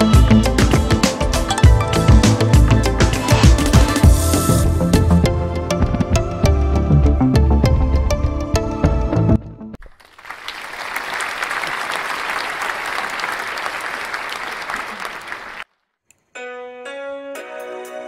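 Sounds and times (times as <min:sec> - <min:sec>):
applause: 0:09.8 - 0:15.7
background piano music: 0:16.4 - 0:18.0.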